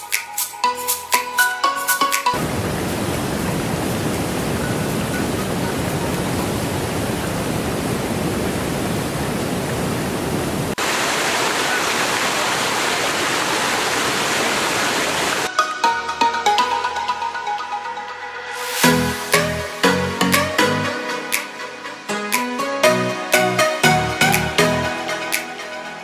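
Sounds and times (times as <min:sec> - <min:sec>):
waterfall rushing: 0:02.3 - 0:15.5
white water over boulders: 0:02.4 - 0:15.5.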